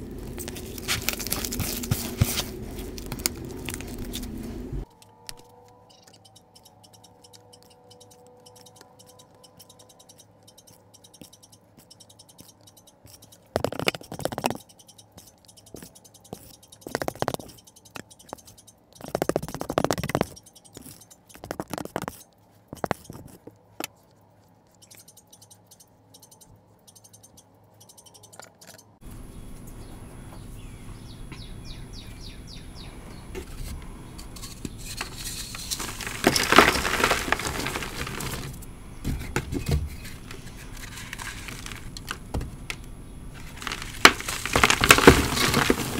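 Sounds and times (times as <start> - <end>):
hands rubbing chalk powder: 0.4 - 4.6, 13.1 - 25.3
spoon scraping squelching paste: 6.2 - 26.4.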